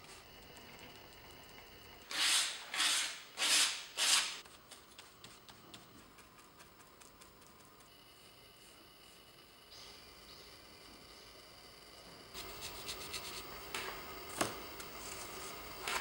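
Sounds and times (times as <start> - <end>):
brush dabbing ticks: 4.7 - 9.6, 12.4 - 13.5
paint brush scrubbing: 12.4 - 13.5.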